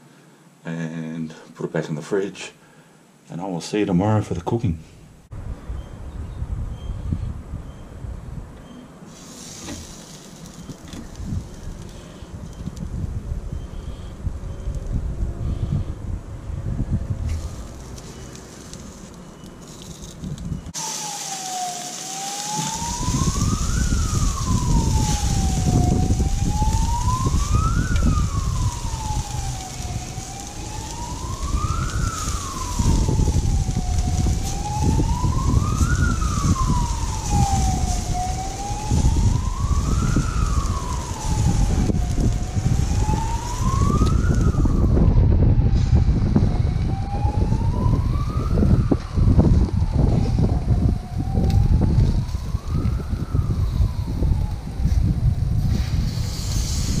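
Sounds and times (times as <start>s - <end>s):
meat sizzling on grill: 9.1s - 12.2s, 17.3s - 20.1s, 20.7s - 43.6s, 55.6s - 57.0s
siren wailing: 20.6s - 55.7s.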